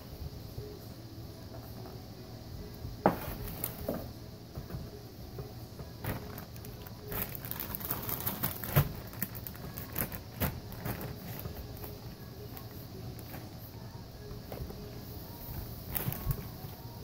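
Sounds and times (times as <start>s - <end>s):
low steady hum: 0.0s - 17.0s
plastic bag crinkling: 6.0s - 13.4s, 15.8s - 16.9s.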